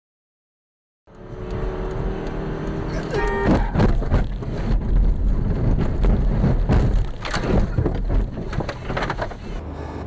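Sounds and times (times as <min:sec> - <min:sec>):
car rumbling over rough ground: 0:01.7 - 0:10.0
heavy knocks and jolts: 0:03.5 - 0:09.2.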